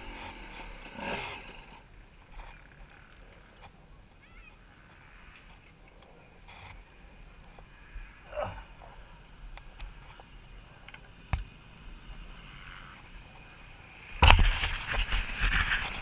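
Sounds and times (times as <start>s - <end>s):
loud burst of rustling: 14.2s - 16.0s.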